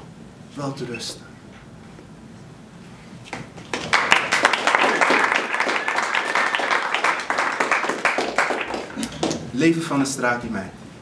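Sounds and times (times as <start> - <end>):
audience applause: 3.7 - 9.5.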